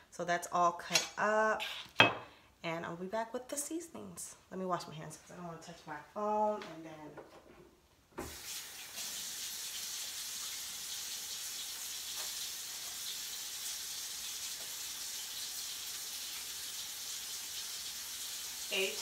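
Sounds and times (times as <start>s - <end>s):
water running into metal sink: 8.2s - 19.0s.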